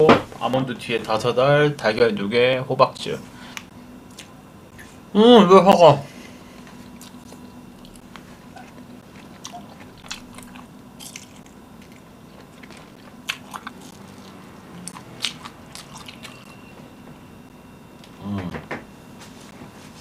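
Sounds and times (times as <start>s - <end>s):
person chewing: 4.1s - 5.0s, 6.6s - 16.7s.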